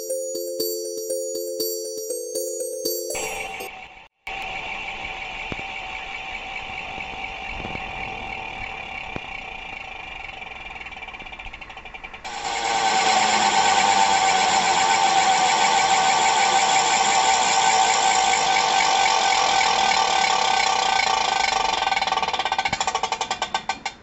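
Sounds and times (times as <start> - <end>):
humming spinning top: 12.3 - 23.6.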